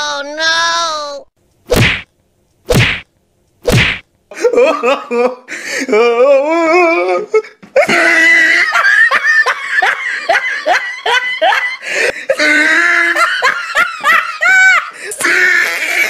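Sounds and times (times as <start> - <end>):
person laughing hard: 7.8 - 16.0.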